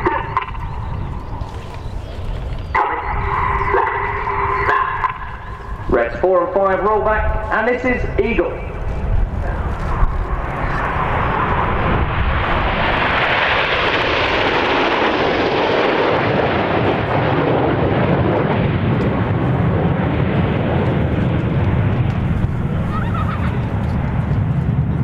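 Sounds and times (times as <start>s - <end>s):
jets passing over: 0.0s - 25.0s.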